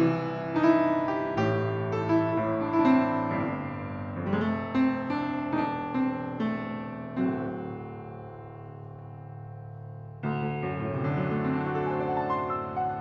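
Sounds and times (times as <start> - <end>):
upright piano playing: 0.0 - 13.0.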